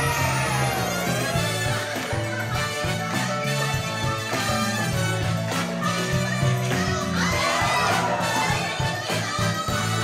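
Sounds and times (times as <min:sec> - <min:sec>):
audience shouting and cheering: 0:00.0 - 0:03.0, 0:06.4 - 0:09.5
music playing: 0:00.0 - 0:10.0.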